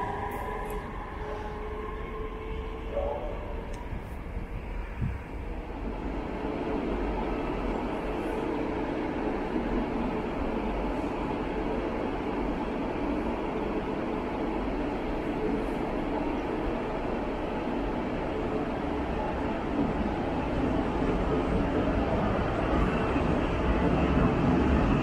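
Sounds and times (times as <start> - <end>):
electric train humming: 0.0 - 25.0.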